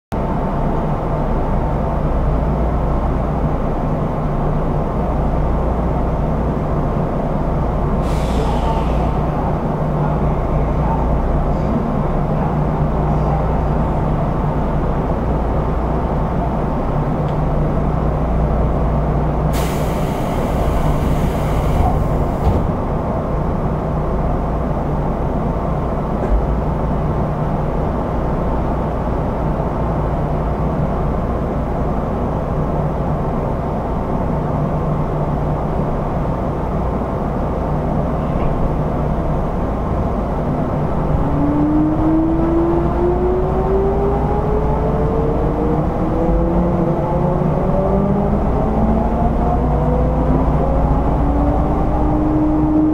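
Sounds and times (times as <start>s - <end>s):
electric train hum: 0.2s - 52.9s
compressed air hissing: 19.5s - 22.4s.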